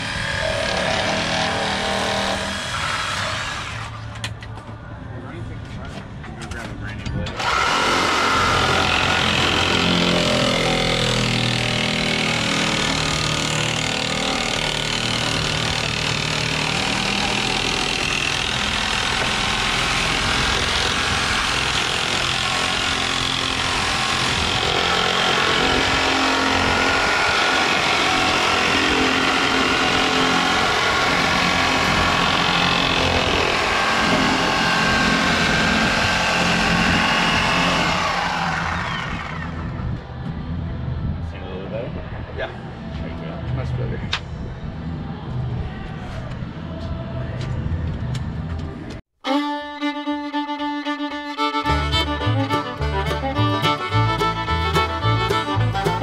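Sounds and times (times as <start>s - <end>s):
electric cutter cutting steel: 0.0s - 4.0s, 7.4s - 39.7s.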